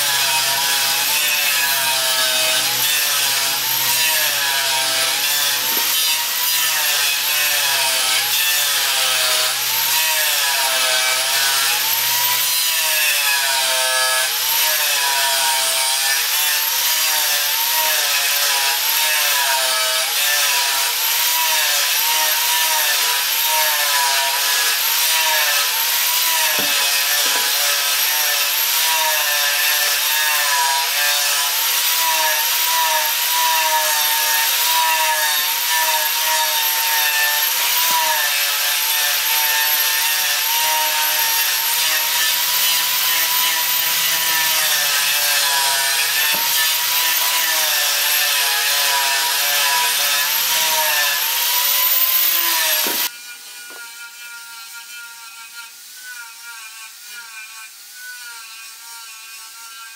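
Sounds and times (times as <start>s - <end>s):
power tool motor whining: 22.8s - 30.2s, 32.3s - 53.8s.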